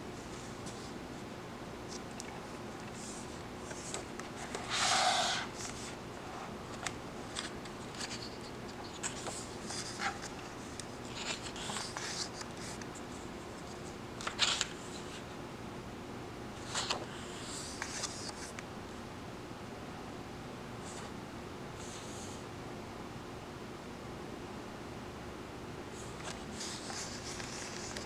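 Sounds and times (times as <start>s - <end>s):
paper pages rustling: 1.9s - 13.0s, 13.6s - 15.2s, 17.7s - 18.6s, 26.1s - 28.0s.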